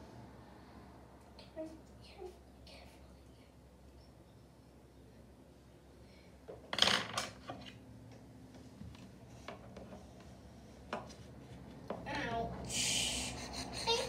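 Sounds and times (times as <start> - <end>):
small objects clattering on desk: 6.6 - 7.8.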